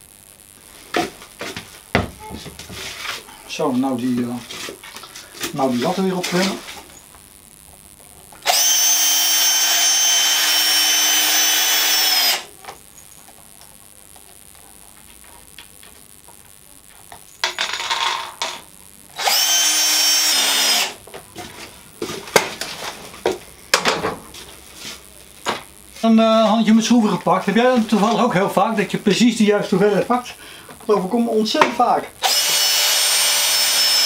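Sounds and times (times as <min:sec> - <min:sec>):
cordless drill whining: 0:08.4 - 0:12.5, 0:19.2 - 0:21.0, 0:32.2 - 0:34.0.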